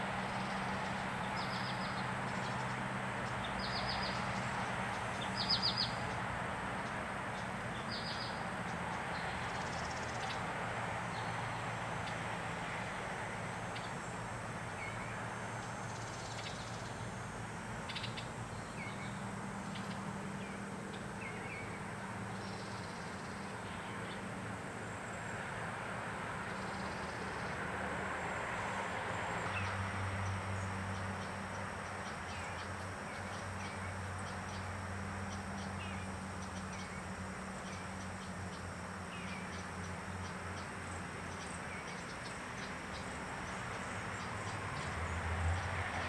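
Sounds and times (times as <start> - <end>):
low outdoor hum: 0.0 - 46.0.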